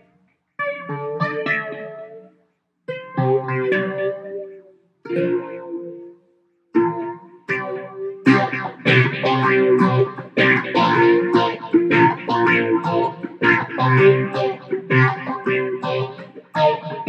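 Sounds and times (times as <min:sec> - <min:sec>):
electric ukulele strumming: 0:05.1 - 0:06.0, 0:06.8 - 0:17.0.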